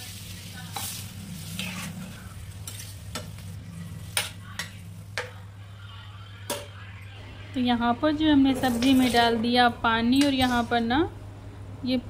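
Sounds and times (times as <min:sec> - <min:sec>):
spatula scraping a pan: 0:00.0 - 0:04.8
curry sizzling: 0:00.0 - 0:06.7, 0:07.7 - 0:11.0.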